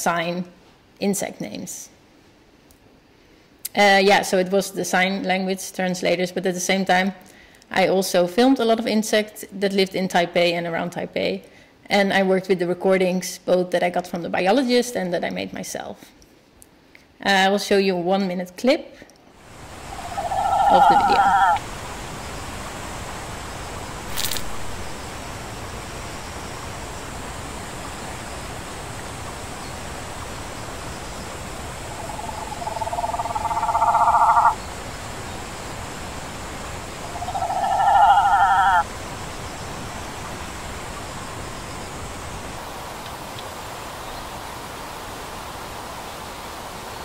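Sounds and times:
steady hiss: 0:19.3 - 0:47.0
buzzing insect calls: 0:19.4 - 0:21.6, 0:27.9 - 0:39.6.

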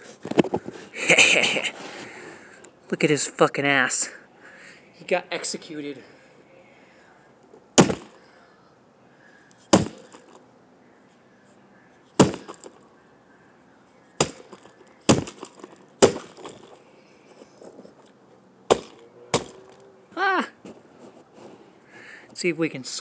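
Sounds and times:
brick striking a toy: 0:07.8 - 0:08.2, 0:09.7 - 0:10.4, 0:12.2 - 0:12.8, 0:14.2 - 0:16.8, 0:18.7 - 0:19.8.

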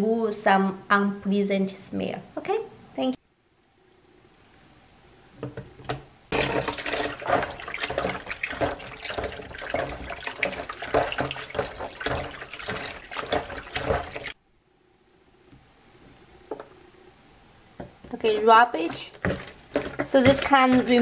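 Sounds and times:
water splashing and sloshing in bowl: 0:06.3 - 0:14.4, 0:18.0 - 0:21.0.

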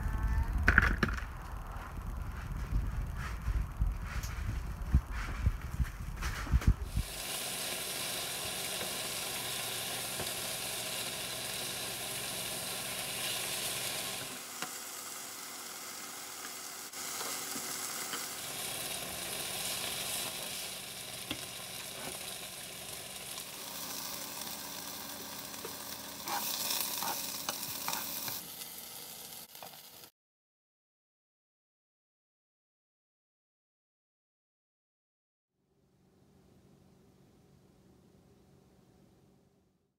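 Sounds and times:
beef sizzling in skillet: 0:06.8 - 0:30.1.

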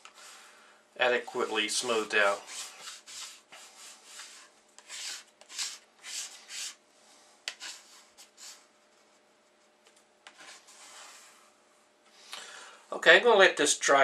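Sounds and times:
plastic card scraping paper: 0:02.2 - 0:06.8.

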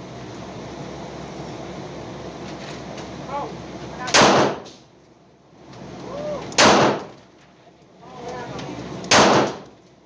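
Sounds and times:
revolver gunshot: 0:04.1 - 0:04.7, 0:06.6 - 0:07.1, 0:09.1 - 0:09.7.

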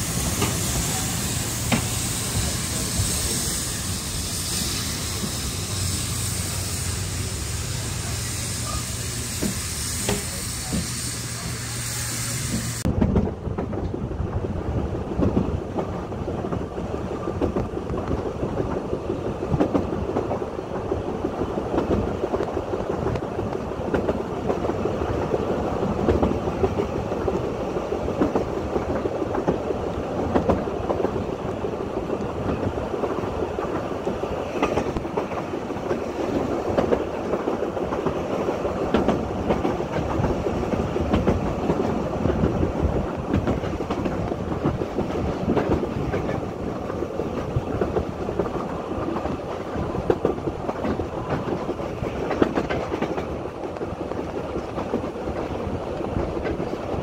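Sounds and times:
hiss: 0:00.0 - 0:12.9
train rumbling along track: 0:00.0 - 0:57.0.

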